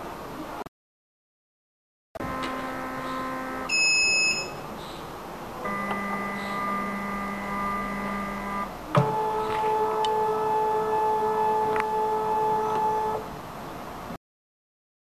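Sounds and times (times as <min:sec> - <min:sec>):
steady hum of held tones: 0:02.2 - 0:13.3
high electronic beep: 0:03.7 - 0:04.6.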